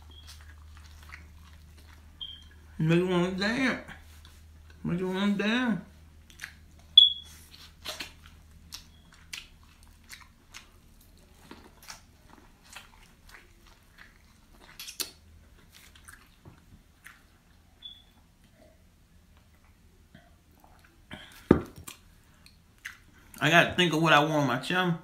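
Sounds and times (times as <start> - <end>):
person chewing corn on the cob: 0.0 - 2.7, 6.2 - 18.6.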